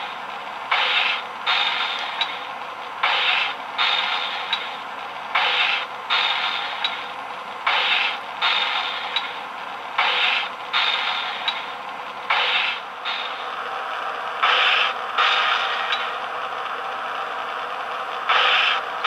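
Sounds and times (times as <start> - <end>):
model train hissing bursts: 0.7 - 2.2, 3.0 - 4.6, 5.3 - 6.8, 7.6 - 9.1, 10.0 - 11.5, 12.3 - 13.5, 18.3 - 19.0.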